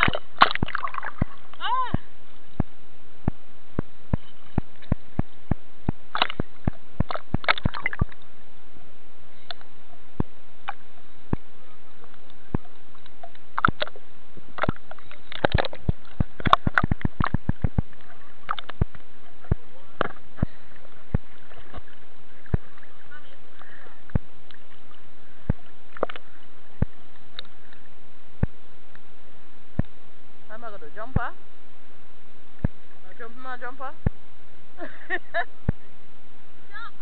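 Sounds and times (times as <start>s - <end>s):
seawater sloshing and splashing: 0.0s - 1.8s, 6.0s - 8.2s, 14.6s - 23.8s.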